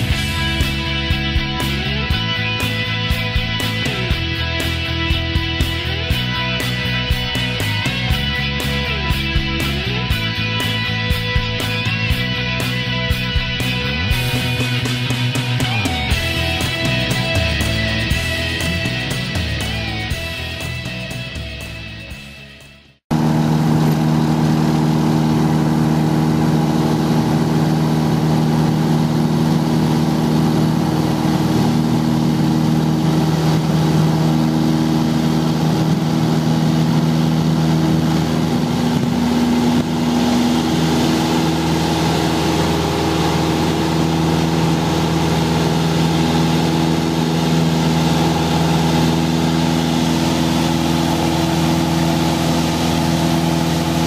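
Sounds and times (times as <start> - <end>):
airplane engine drone in cabin: 23.1 - 54.0.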